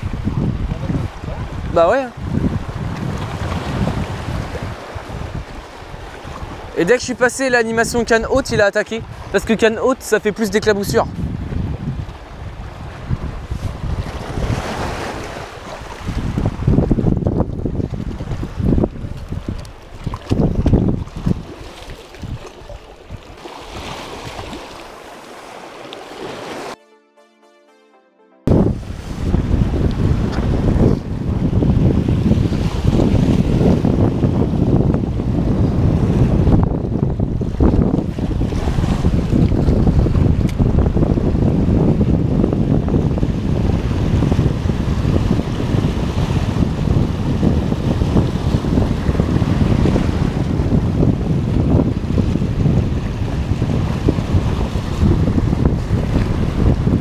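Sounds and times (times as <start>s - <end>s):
wind buffeting microphone: 0.0s - 26.7s, 28.5s - 57.0s
waves lapping against rocks: 12.0s - 26.7s.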